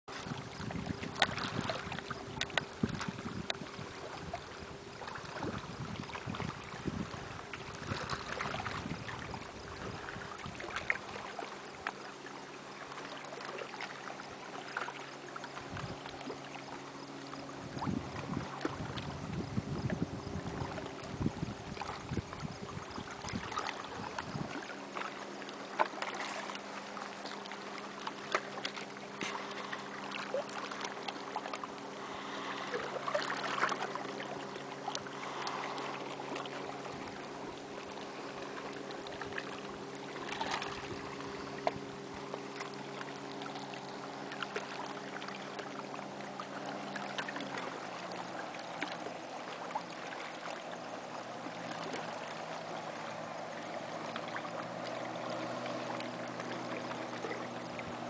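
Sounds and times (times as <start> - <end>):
wind on microphone: 0.1 - 11.0, 15.7 - 16.0, 17.5 - 24.7
low motor hum: 0.1 - 58.0
waves lapping against rocks: 0.1 - 58.0.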